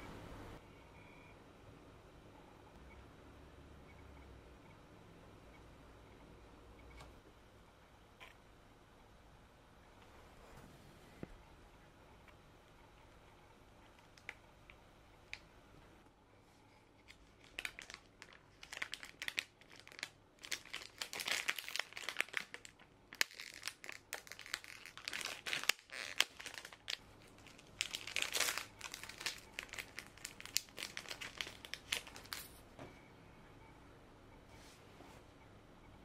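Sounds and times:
plastic packet crinkling and tearing: 17.0s - 32.6s.

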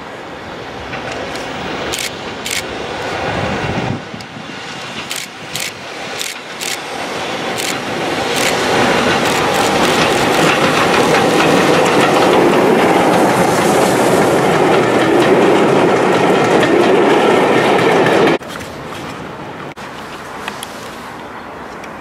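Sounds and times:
steam train passing: 0.0s - 21.8s
wheels clicking on rails: 4.1s - 18.6s.

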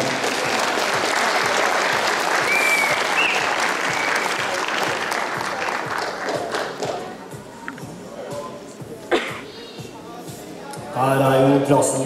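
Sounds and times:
audience applauding: 0.0s - 7.0s
short whistle: 2.5s - 4.3s.

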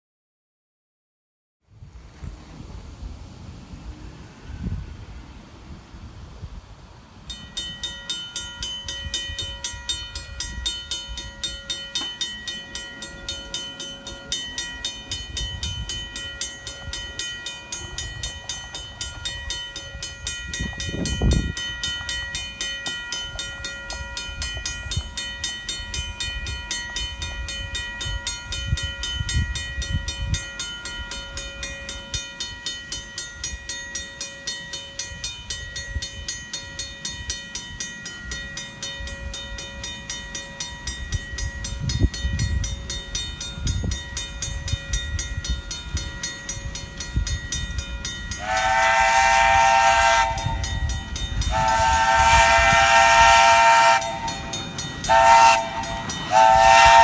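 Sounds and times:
crossing bell ringing: 4.0s - 5.5s, 7.1s - 57.0s
steam locomotive whistle: 48.4s - 57.0s.

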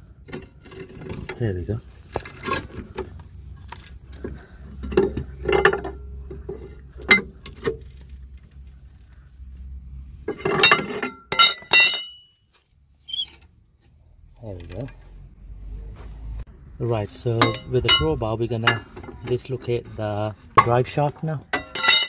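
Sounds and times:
metal tools knocking on metal: 4.8s - 7.3s, 10.3s - 12.3s, 17.4s - 19.4s, 21.5s - 22.0s.

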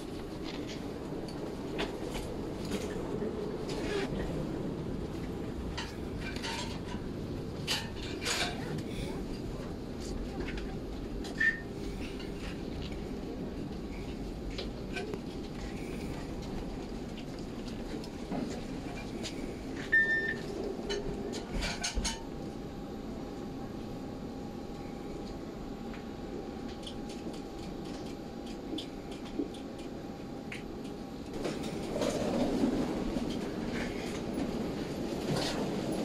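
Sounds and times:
steady hum and low rumble: 0.0s - 36.0s
short electronic beep: 19.9s - 20.4s
wheeled suitcase rolling: 31.4s - 36.0s.

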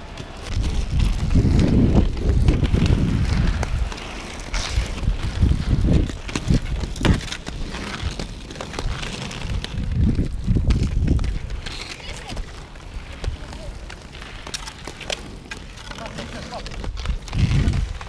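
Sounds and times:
hockey sticks clicking: 0.0s - 18.0s
skate wheels rolling on asphalt: 0.0s - 18.0s
wind on microphone: 0.4s - 8.2s, 8.8s - 11.7s, 16.9s - 18.0s.

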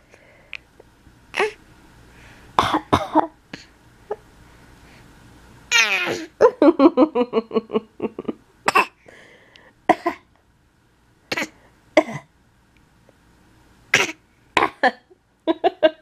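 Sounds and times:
baby vocal sounds: 1.3s - 1.6s, 5.7s - 6.4s
infant coughing: 2.6s - 3.4s, 5.9s - 6.4s, 8.7s - 9.0s, 9.9s - 10.3s, 11.3s - 12.3s, 13.9s - 14.9s.

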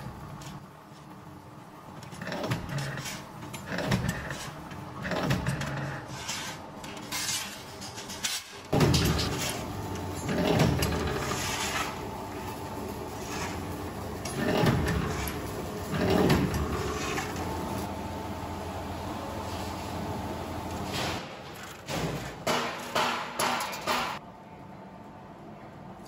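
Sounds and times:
sheet steel scraping and clattering: 5.3s - 17.8s
low machine hum: 8.7s - 21.2s.

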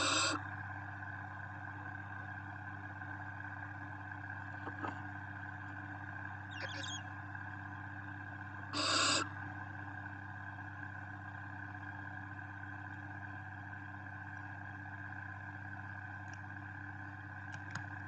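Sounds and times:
owl chick hissing call: 0.0s - 0.4s, 6.5s - 7.0s, 8.8s - 9.3s
steady low hum: 0.0s - 18.0s.

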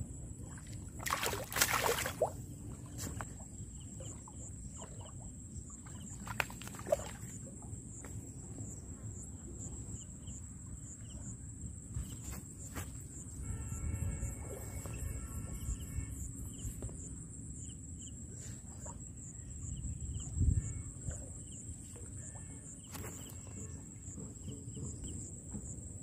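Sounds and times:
fish splashing in water: 0.9s - 2.4s, 5.8s - 7.4s
steady high-pitched hum: 7.0s - 25.8s.

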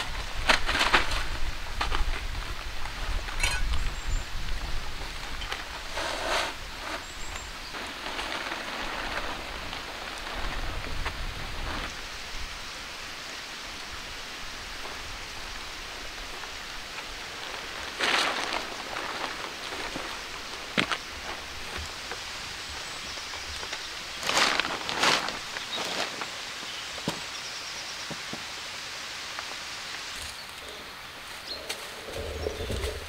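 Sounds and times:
plastic tarp rustling: 0.0s - 12.6s, 14.6s - 26.8s.

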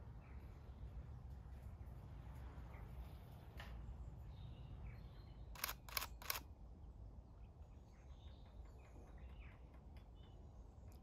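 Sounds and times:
camera shutter firing: 5.6s - 6.5s.

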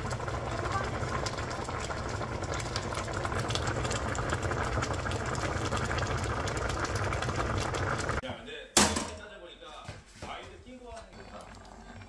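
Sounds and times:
stew bubbling in a pan: 0.0s - 8.2s, 11.0s - 12.0s.

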